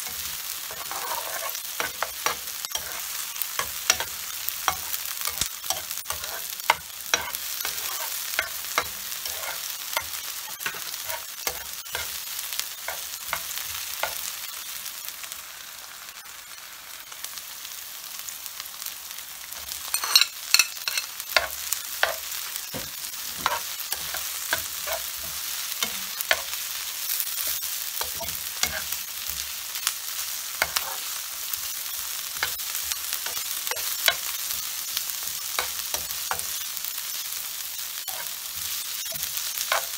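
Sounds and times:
spatula scraping pan: 0:00.0 - 0:12.2, 0:19.9 - 0:29.5, 0:30.6 - 0:31.7, 0:38.0 - 0:39.9
onions sizzling in frying pan: 0:00.0 - 0:39.9.

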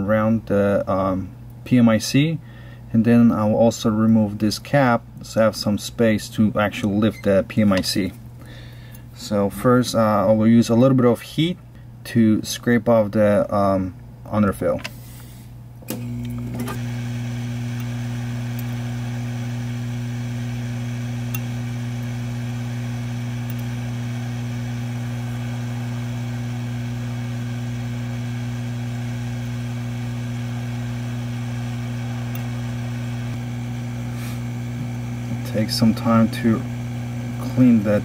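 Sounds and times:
hot-air blower hum and hiss: 0:14.8 - 0:38.0.

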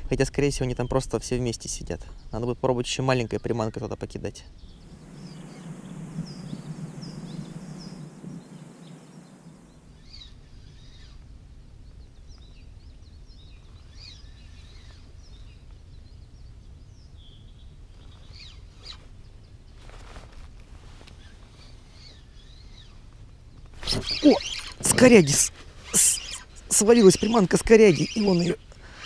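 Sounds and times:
birds chirping: 0:00.6 - 0:20.1, 0:21.1 - 0:29.0
low rushing noise: 0:04.6 - 0:10.7.

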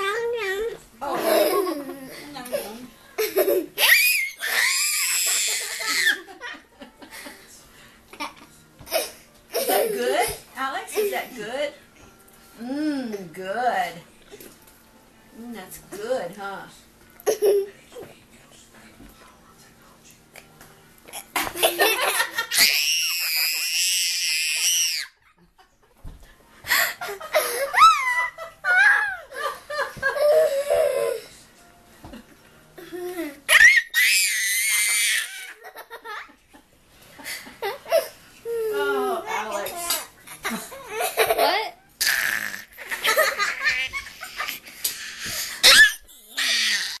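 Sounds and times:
toddler shrieking: 0:03.8 - 0:06.2, 0:22.6 - 0:25.1, 0:33.5 - 0:35.5, 0:45.6 - 0:47.0
toddler squealing: 0:03.8 - 0:06.2, 0:33.5 - 0:35.5.

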